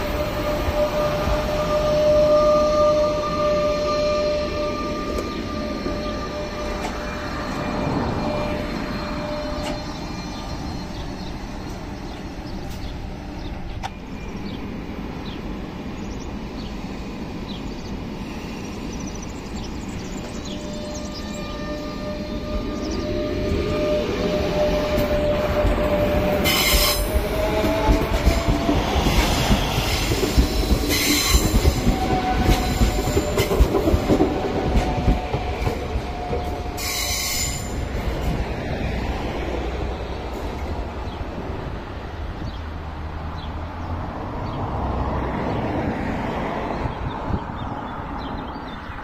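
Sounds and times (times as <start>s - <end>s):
train wheels squealing: 0.0s - 14.6s, 16.9s - 39.2s
electric train whine: 0.0s - 42.6s
train wheels rumbling on rail: 0.0s - 49.0s.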